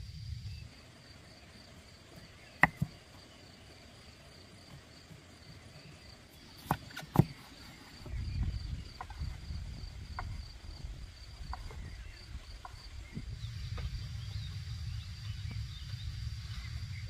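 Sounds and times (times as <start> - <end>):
crickets chirring: 0.0 - 17.0
sharp knocks: 2.6 - 3.0
low rumble: 8.1 - 17.0.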